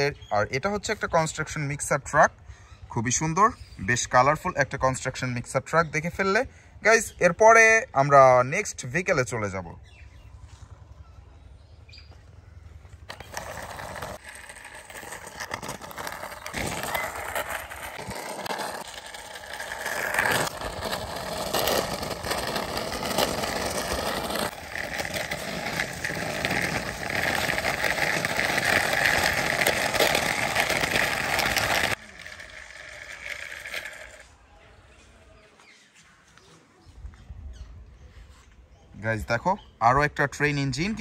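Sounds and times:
toy train wheels rolling on concrete: 12.3 - 34.4.

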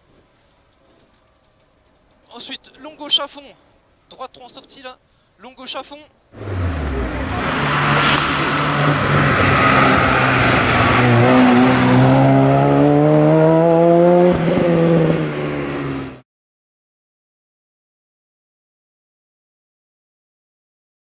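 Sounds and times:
rally car engine accelerating: 6.3 - 16.2.

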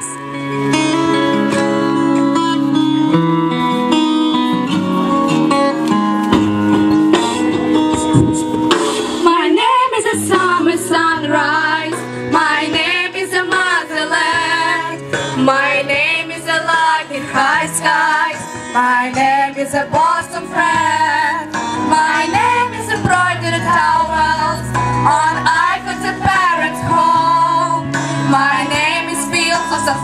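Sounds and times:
strummed acoustic guitar: 0.2 - 9.2
girls singing along: 9.3 - 30.0.

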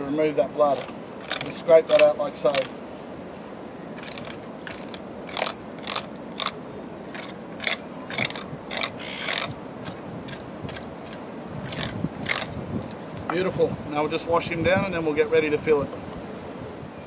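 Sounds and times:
knife scraping against fish bones: 4.0 - 9.6.

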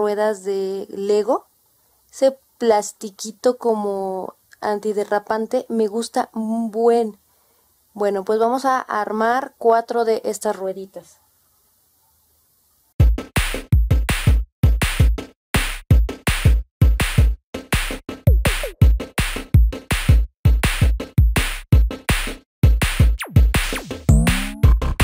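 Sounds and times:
electronic music with drum-machine beat: 13.0 - 15.3, 15.9 - 25.0.

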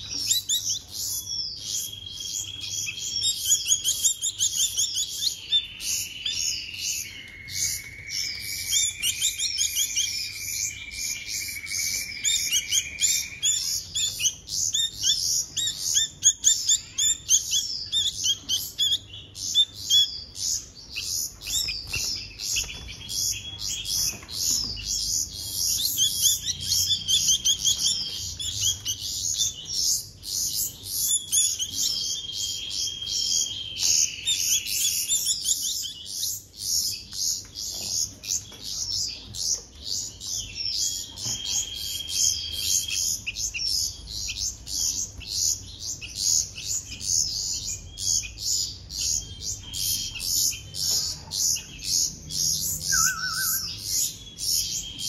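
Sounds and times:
fledgling bird chirping rapidly: 0.0 - 55.0.

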